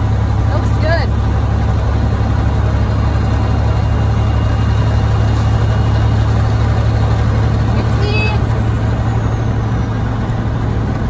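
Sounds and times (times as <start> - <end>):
road noise inside cab: 0.0 - 11.0
truck diesel engine drone: 0.0 - 11.0.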